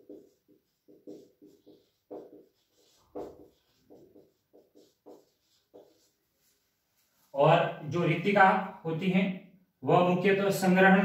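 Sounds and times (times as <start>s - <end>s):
marker writing on whiteboard: 0.0s - 7.4s.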